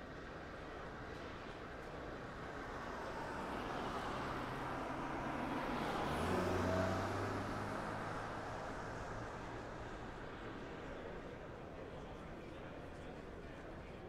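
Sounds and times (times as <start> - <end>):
city street noise: 0.0 - 14.0
car engine passing: 4.4 - 9.3.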